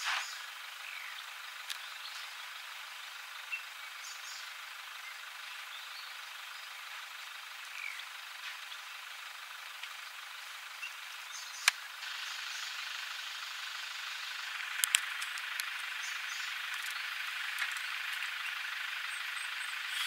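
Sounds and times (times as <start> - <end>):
steady outdoor hiss: 0.0 - 20.0
sharp clicks: 11.6 - 11.9, 14.6 - 18.4.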